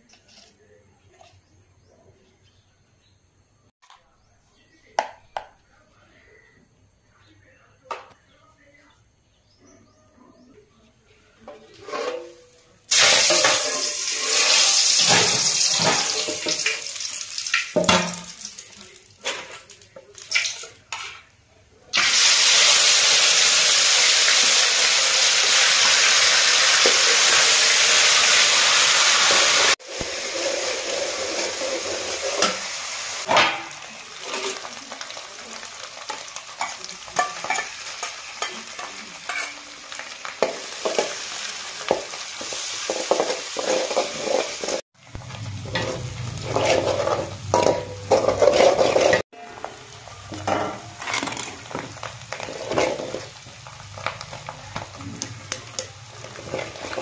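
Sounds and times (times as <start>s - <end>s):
steel ladle scraping a pan: 11.6s - 17.0s, 29.0s - 33.3s, 36.1s - 41.2s, 42.4s - 57.0s
hot oil sizzling in a pan: 12.9s - 20.8s, 21.9s - 57.0s.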